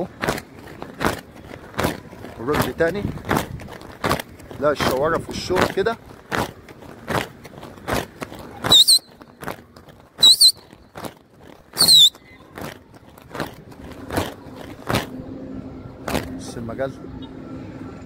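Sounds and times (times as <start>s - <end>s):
shrill warbling whistles: 8.7s - 9.1s, 10.2s - 10.6s, 11.8s - 12.2s.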